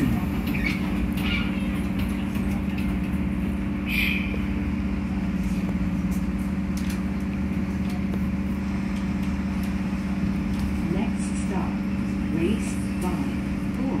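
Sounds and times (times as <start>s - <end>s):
subway car humming: 0.0s - 14.0s.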